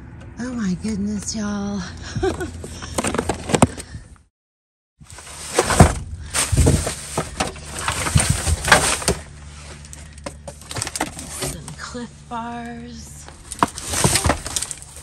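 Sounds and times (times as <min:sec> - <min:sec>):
trash rustling and crinkling: 0:02.2 - 0:04.0, 0:05.0 - 0:15.0
steady low hum: 0:05.1 - 0:15.0.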